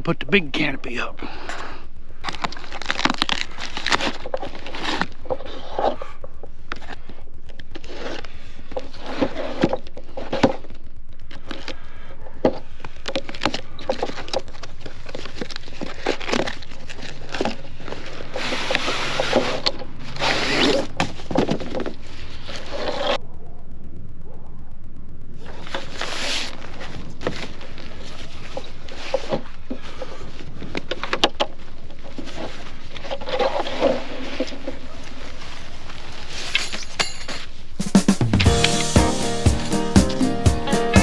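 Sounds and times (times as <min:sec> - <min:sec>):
cardboard scraping and tearing: 0:02.3 - 0:06.2, 0:07.6 - 0:10.7, 0:13.2 - 0:23.2, 0:25.6 - 0:29.6, 0:32.0 - 0:36.8.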